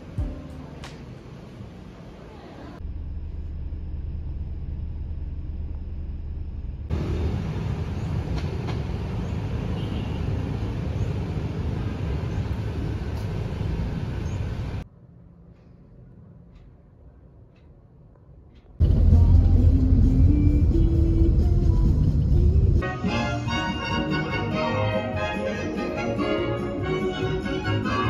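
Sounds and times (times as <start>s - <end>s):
car engine and road noise inside: 0.0s - 17.2s, 18.2s - 22.8s
traffic and engine noise: 0.0s - 28.0s.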